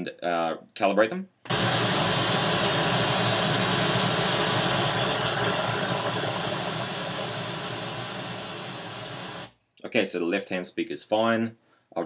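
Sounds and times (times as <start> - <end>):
pink noise hiss: 1.5 - 9.5.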